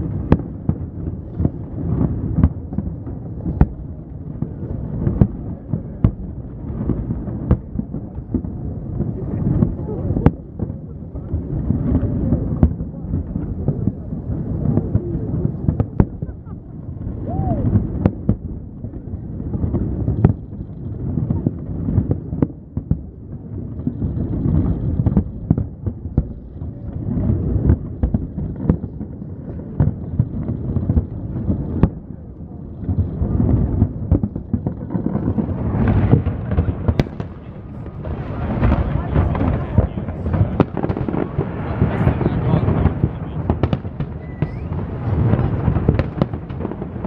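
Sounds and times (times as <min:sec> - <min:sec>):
fireworks bangs: 0:00.0 - 0:47.0
low rumble of booms: 0:00.0 - 0:47.0.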